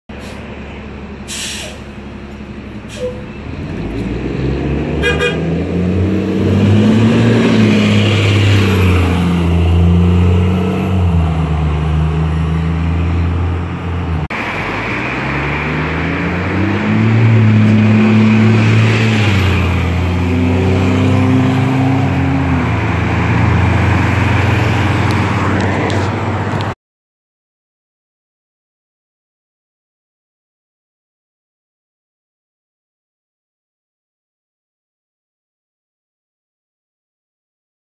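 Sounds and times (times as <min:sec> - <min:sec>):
bus engine accelerating: 0:00.1 - 0:26.8.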